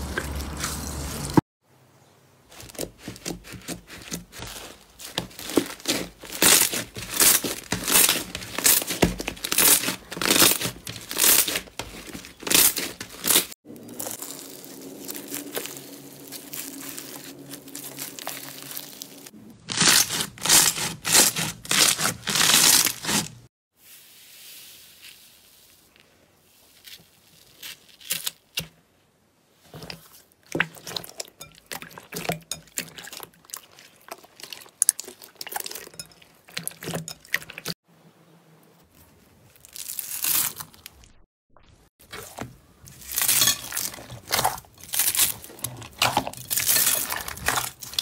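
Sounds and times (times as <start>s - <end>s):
crunchy slime crackling: 2.5s - 23.5s, 39.4s - 41.2s, 42.1s - 48.0s
foam slime crunching: 2.5s - 23.5s, 24.4s - 28.6s, 39.4s - 41.1s, 42.1s - 48.0s.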